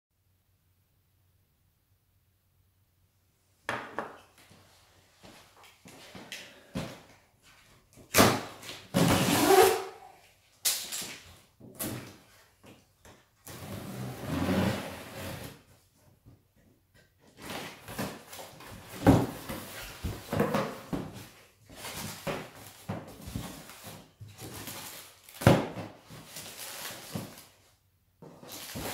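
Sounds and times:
cardboard scraping and rustling: 28.3 - 28.9.

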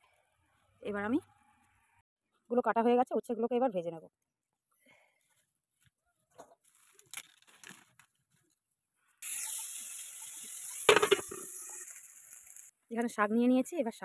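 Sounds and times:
vegetables sizzling in hot oil: 9.2 - 12.7
pan clatter: 10.6 - 12.7.

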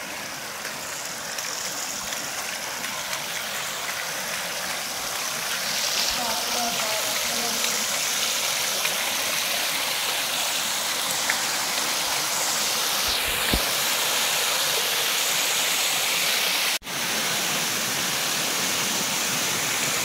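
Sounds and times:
water pouring over a weir: 0.0 - 14.0.

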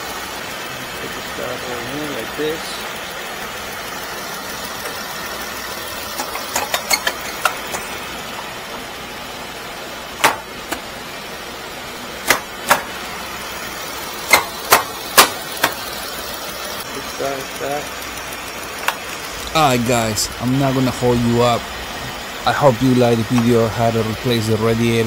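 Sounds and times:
car engine idling: 0.0 - 25.0
sharp clicks and knocks: 6.1 - 8.5, 10.2 - 10.9, 12.2 - 13.0, 14.2 - 15.9, 18.7 - 19.3.

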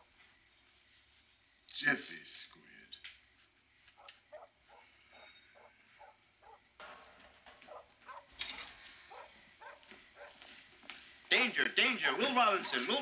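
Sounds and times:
faint footsteps: 3.0 - 4.8, 6.8 - 12.8.

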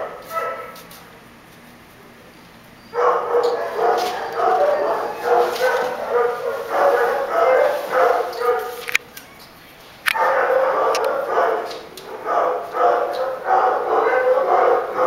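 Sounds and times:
dogs barking and yipping: 0.0 - 0.8, 2.8 - 9.0, 10.0 - 15.0.

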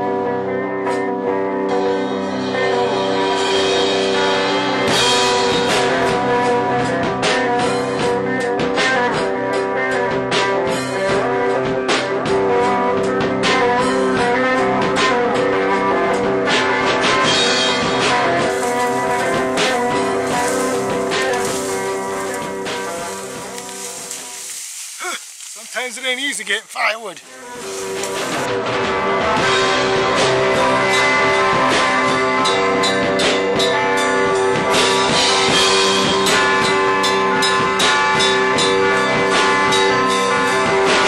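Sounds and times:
blues-rock guitar music: 0.0 - 24.8, 26.2 - 41.0
drum beat: 18.4 - 24.3.

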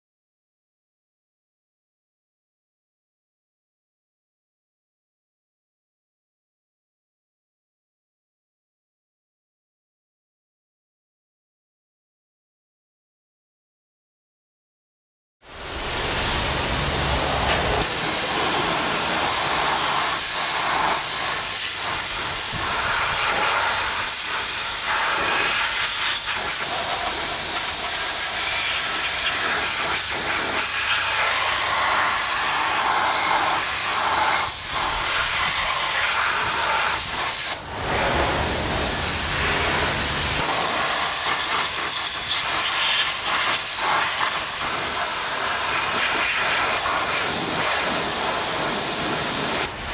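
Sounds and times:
pressure washer spraying wheel: 15.5 - 49.9.

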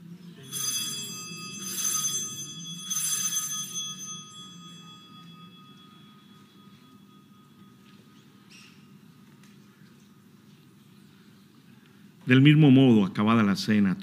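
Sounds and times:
altar bells ringing: 0.4 - 8.9.

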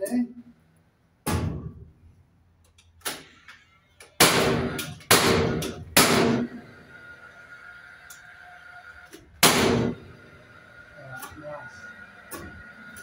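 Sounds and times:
nail gun firing into timber: 4.2 - 6.6, 9.4 - 10.0.

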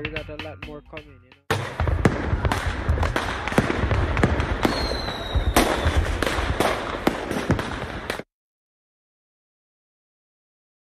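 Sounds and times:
fireworks bangs and crackle: 1.5 - 8.3.

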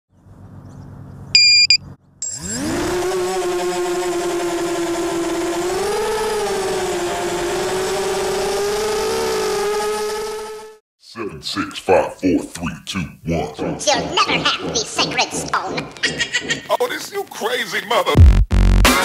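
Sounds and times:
short high electronic beep: 1.4 - 2.6
quadcopter propeller whine: 1.4 - 10.8.

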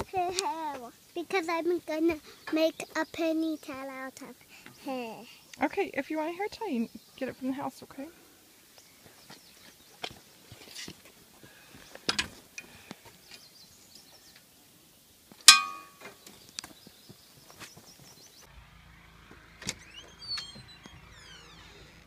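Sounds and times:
metallic clang: 15.4 - 16.2
faint high squeaky chirps: 16.0 - 22.0
low hum: 18.5 - 22.0.

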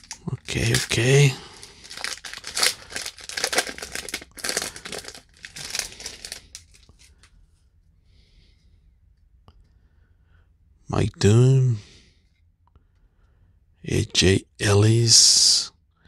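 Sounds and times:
foil wrapper crinkling and tearing: 0.0 - 7.2.

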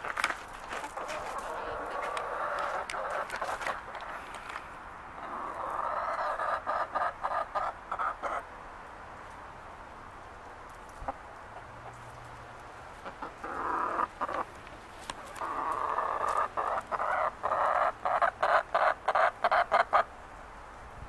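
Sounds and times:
chicken clucking: 0.1 - 4.6, 5.2 - 8.5, 13.0 - 20.1
chicken calling: 0.7 - 4.6, 5.2 - 8.4, 13.0 - 20.1.

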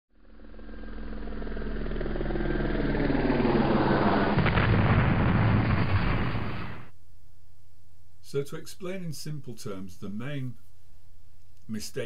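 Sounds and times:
steady hum: 0.2 - 12.0
low rumble: 0.3 - 7.0.

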